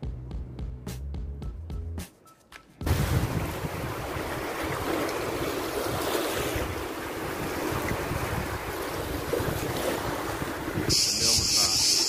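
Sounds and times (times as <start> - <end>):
waves washing over rocks: 2.8 - 12.0
wind buffeting microphone: 2.8 - 12.0.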